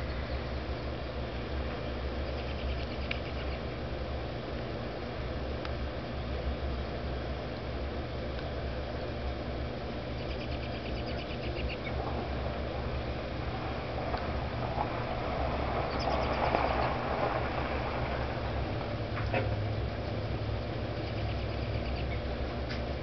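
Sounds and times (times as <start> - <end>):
distant engine hum: 0.0 - 23.0
bird trill: 10.2 - 12.0, 21.0 - 22.2
rushing noise: 11.9 - 20.9.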